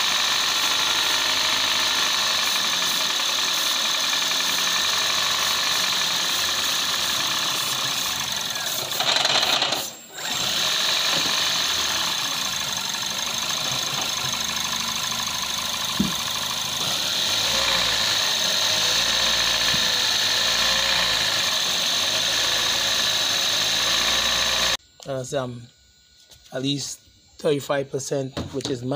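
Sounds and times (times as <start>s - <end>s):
car engine idling roughly: 11.4s - 16.8s.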